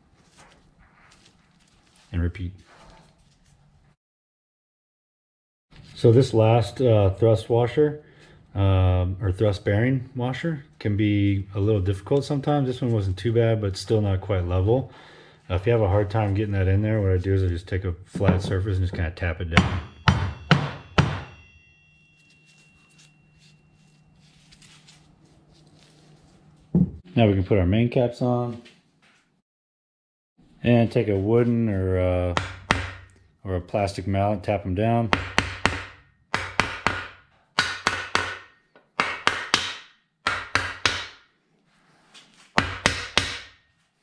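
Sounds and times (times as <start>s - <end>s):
wooden mallet tapping on metal: 18.2s - 21.6s
metal part knocking with ringing: 18.2s - 21.9s.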